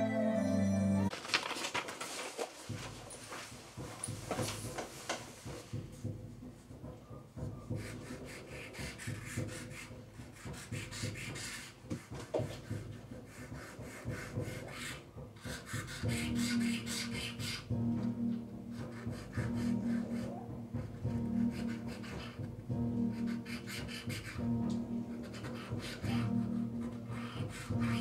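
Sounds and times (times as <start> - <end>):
pen nib scratching paper: 7.7 - 17.6, 21.4 - 22.5, 23.1 - 24.4, 25.2 - 28.0.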